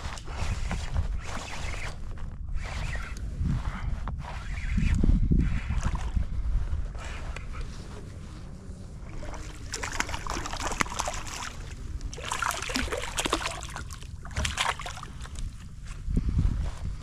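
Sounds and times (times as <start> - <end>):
fish splashing at water surface: 9.1 - 15.4.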